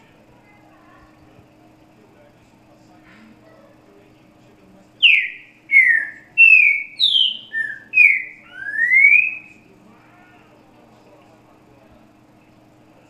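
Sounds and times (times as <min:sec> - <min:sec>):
bird whistled song: 0:05.0 - 0:09.6.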